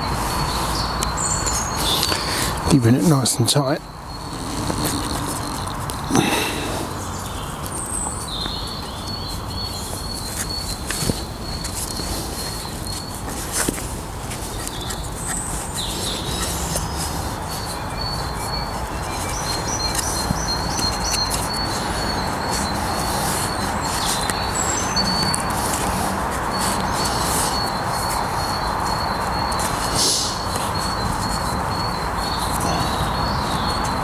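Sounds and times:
songbirds chirping: 0:00.0 - 0:34.0.

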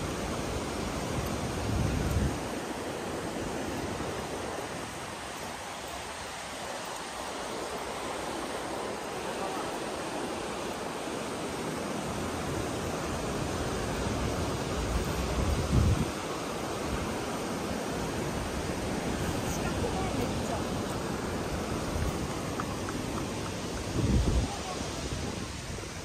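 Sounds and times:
wind buffeting microphone: 0:00.0 - 0:05.4, 0:12.2 - 0:26.0
river water rushing over rapids: 0:00.0 - 0:26.0.

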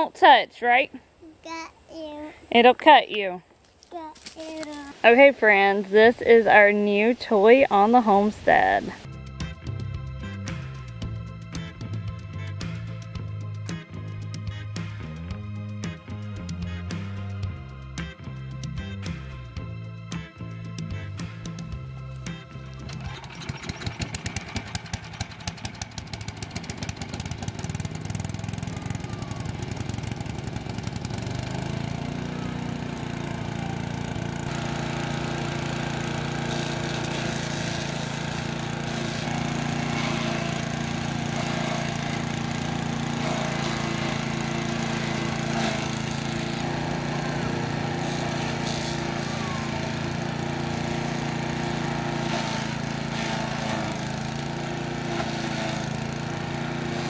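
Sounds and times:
small gas engine running: 0:21.4 - 0:57.0.

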